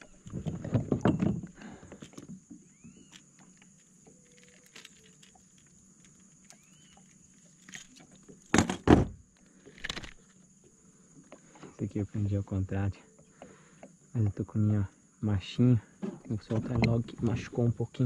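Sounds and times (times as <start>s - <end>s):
clattering on plastic kayak: 0.3s - 2.3s, 8.5s - 9.2s.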